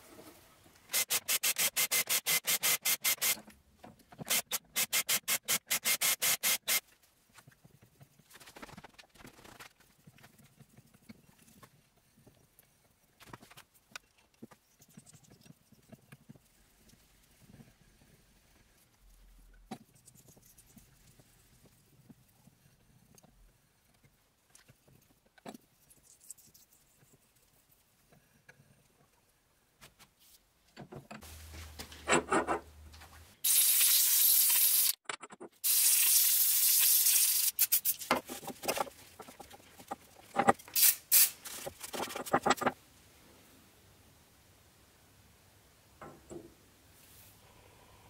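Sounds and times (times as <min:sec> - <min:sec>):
loud bursts of hissing: 0:33.4 - 0:35.0, 0:35.6 - 0:37.9.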